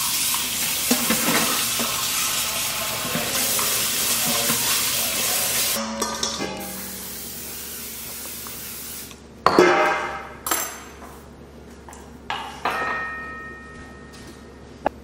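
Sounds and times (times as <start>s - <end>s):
water running from tap: 0.0s - 5.8s
dishes clattering: 0.8s - 2.1s, 5.8s - 6.9s, 9.4s - 11.0s, 12.3s - 14.3s.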